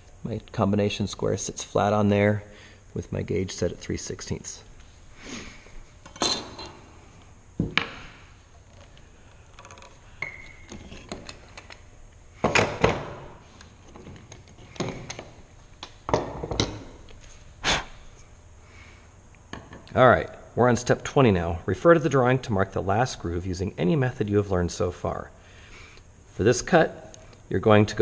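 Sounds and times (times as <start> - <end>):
tools knocking on wooden workbench: 7.6 - 8.0.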